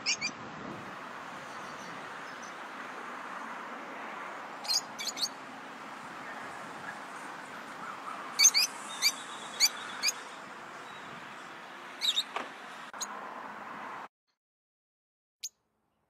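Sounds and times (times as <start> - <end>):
lovebirds chirping: 0.0 - 0.4, 1.4 - 3.6, 4.6 - 13.2.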